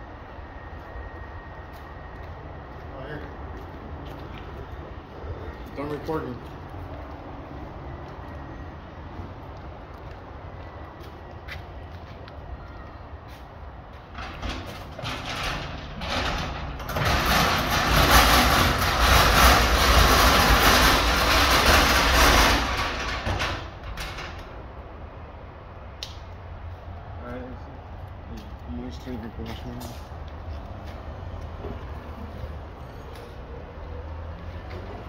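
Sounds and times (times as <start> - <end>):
vehicle engine rumbling: 0.0 - 35.0
garbage truck engine rumble: 13.1 - 26.7.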